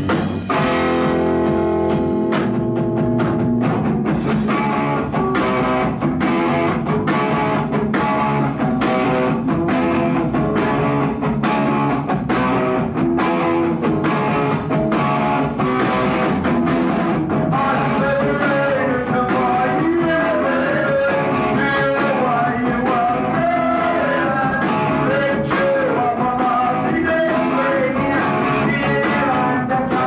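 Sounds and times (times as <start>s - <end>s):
bass guitar: 0.0s - 30.0s
drum kit beat: 0.0s - 30.0s
electric guitar chords: 0.0s - 30.0s.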